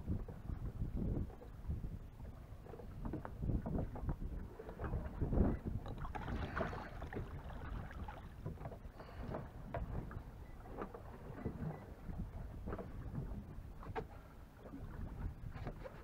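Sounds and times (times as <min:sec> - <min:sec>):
water lapping and splashing: 0:00.0 - 0:16.0
wind buffeting microphone: 0:00.0 - 0:16.0.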